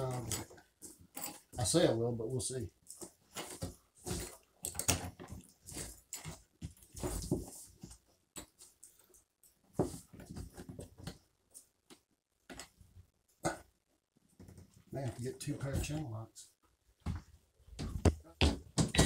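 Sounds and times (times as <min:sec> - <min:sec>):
hands scraping and rustling: 0:02.8 - 0:13.1.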